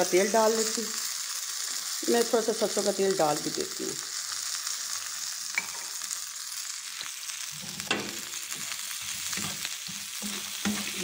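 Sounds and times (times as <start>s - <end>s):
vegetables sizzling in oil: 0.0s - 11.0s
spatula clicking and scraping pan: 7.6s - 11.0s.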